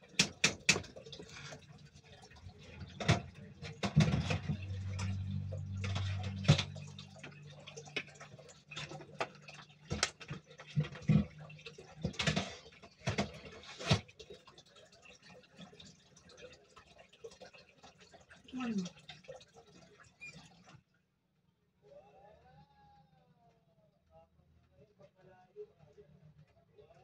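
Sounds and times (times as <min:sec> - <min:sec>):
low hum: 0:02.4 - 0:08.7.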